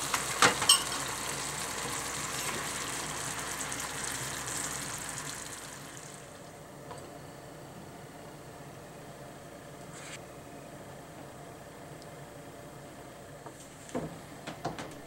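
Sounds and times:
sauce sizzling and bubbling in a pan: 0.0s - 6.7s.

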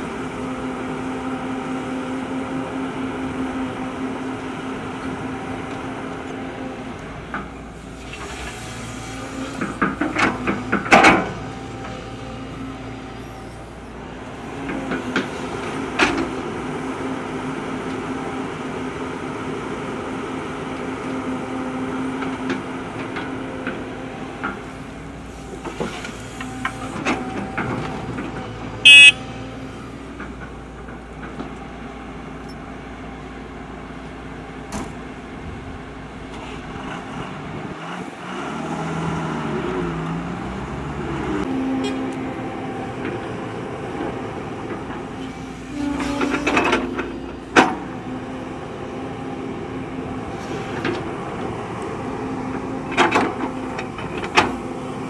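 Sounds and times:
excavator diesel engine running: 0.0s - 55.0s
high-pitched tone: 28.9s - 29.2s.

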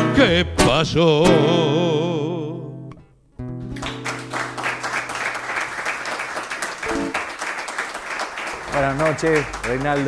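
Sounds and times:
audience applauding: 3.7s - 10.0s.

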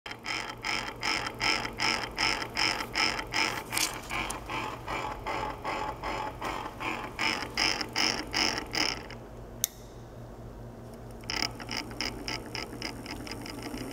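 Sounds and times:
servo motor grinding clicks: 0.1s - 4.8s
motor low hum: 0.1s - 13.9s.

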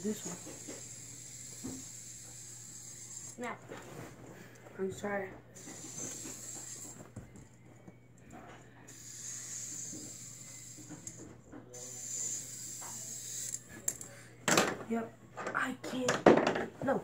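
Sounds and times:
fidget spinner whirring: 0.0s - 3.9s, 4.9s - 7.6s, 8.2s - 14.1s.

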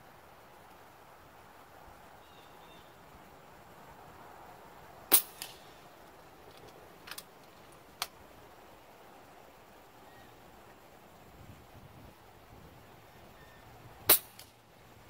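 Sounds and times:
air rifle shot: 5.1s - 5.7s, 14.1s - 14.5s.

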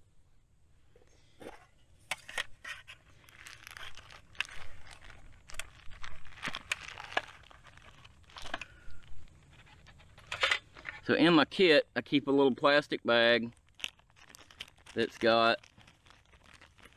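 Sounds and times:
plastic bag crinkling: 2.1s - 11.1s, 12.8s - 16.9s.

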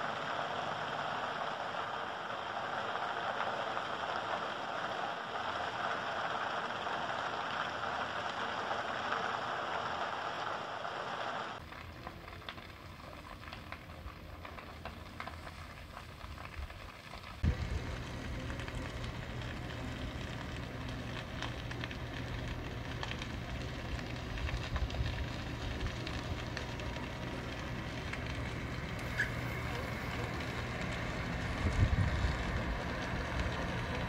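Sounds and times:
fire crackling and popping: 0.0s - 34.0s
steady low hum: 17.4s - 34.0s.

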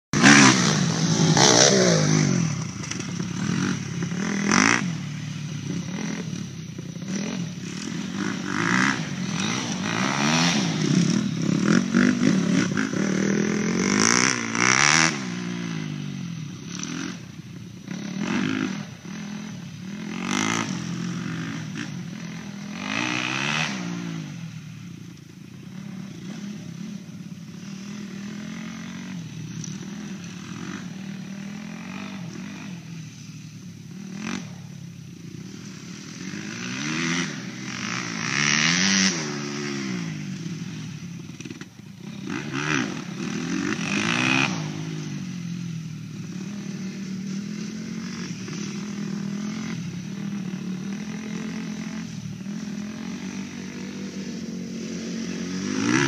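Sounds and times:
dirt bike engines revving: 0.0s - 56.0s.

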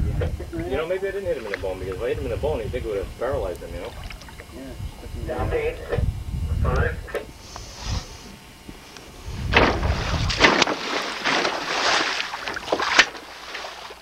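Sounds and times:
fish tail splashing water: 3.8s - 4.6s, 9.6s - 14.0s
sharp water slaps: 9.5s - 14.0s.

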